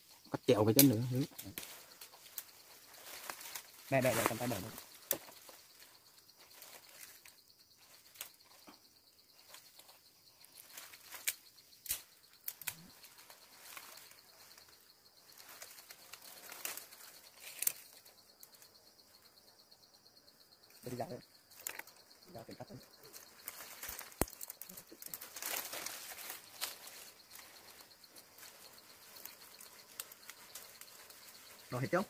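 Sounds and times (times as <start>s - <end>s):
leaves rustling: 0.0s - 8.7s, 9.3s - 19.5s, 20.7s - 32.0s
twigs snapping: 10.7s - 12.9s, 15.6s - 18.0s, 21.5s - 21.9s, 23.4s - 27.0s.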